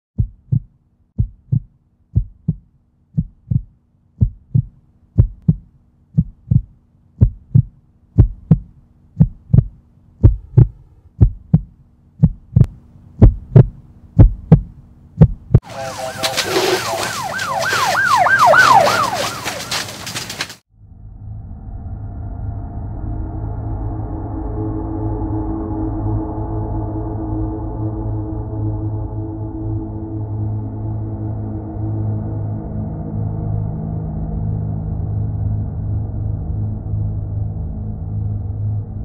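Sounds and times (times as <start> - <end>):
heartbeat: 0.2 - 15.6
faint low drone: 7.2 - 14.6, 20.7 - 39.0
emergency siren wailing: 15.6 - 20.4
house fire crackling: 15.7 - 20.6.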